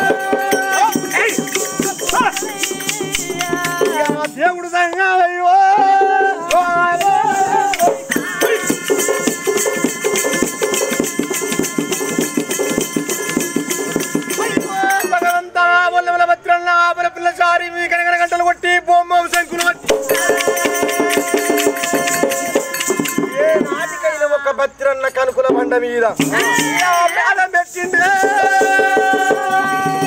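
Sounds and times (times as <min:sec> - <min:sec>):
ankle bells jingling: 0:00.0 - 0:05.0, 0:06.6 - 0:15.6, 0:19.3 - 0:30.0
person singing melody: 0:00.0 - 0:10.9, 0:19.4 - 0:24.2, 0:26.2 - 0:30.0.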